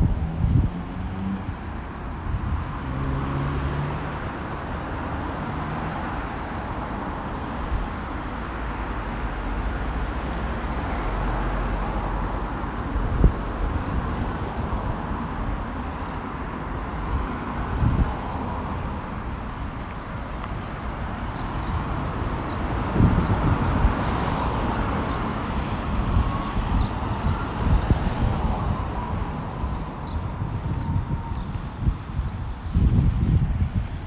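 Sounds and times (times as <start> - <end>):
road traffic: 0.0 - 34.0
low engine hum: 9.1 - 34.0.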